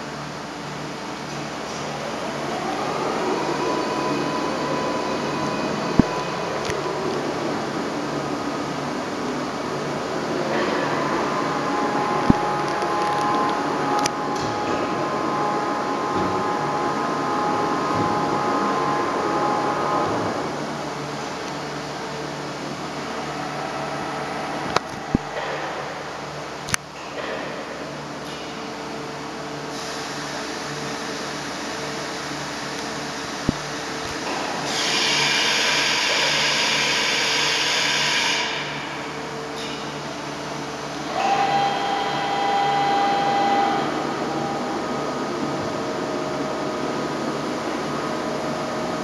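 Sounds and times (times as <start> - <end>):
machine whine: 0.0 - 49.0
machine hiss: 29.6 - 40.1.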